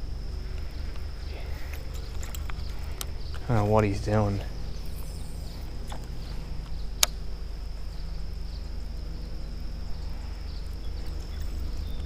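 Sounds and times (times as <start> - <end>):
high insect hum: 0.0 - 12.0
low steady rumble: 0.0 - 12.0
sharp click: 5.9 - 7.2.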